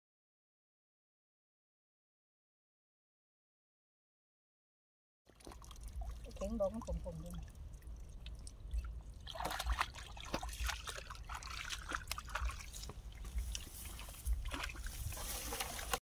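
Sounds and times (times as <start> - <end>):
water sloshing and trickling: 5.3 - 16.0
feet splashing through muddy water: 8.2 - 16.0.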